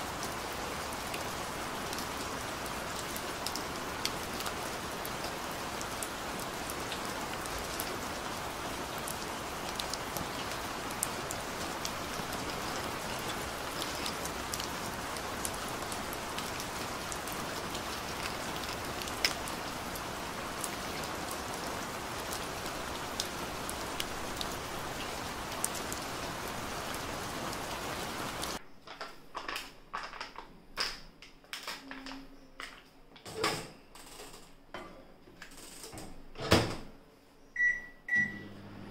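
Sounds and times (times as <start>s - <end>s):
rain on hard surface: 0.0s - 28.6s.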